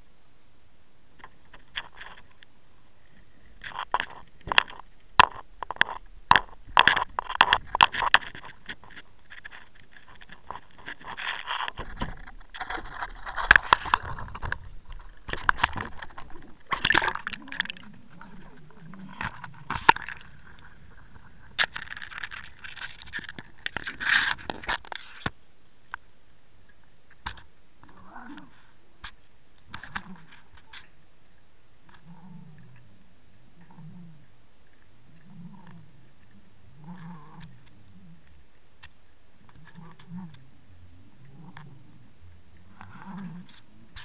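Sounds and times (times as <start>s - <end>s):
scraping and rustling on carpet: 7.0s - 25.3s.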